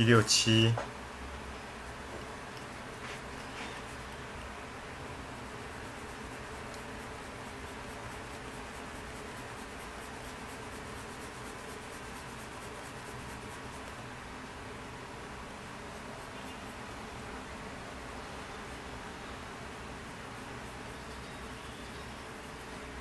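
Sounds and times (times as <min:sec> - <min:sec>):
background hiss: 0:00.0 - 0:23.0
pencil scratching on paper: 0:03.0 - 0:04.2, 0:05.8 - 0:13.9.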